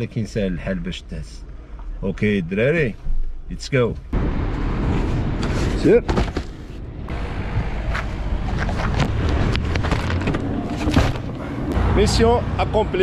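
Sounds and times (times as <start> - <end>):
cardboard box knocks and scrapes: 8.6 - 11.4.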